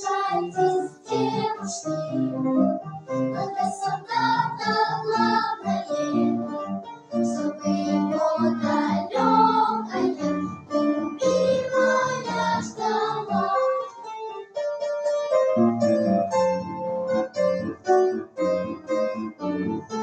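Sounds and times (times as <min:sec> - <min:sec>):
children's choir singing: 0:00.0 - 0:02.6, 0:03.3 - 0:06.6, 0:07.2 - 0:10.4, 0:11.2 - 0:14.1
piano accompaniment: 0:00.0 - 0:20.0.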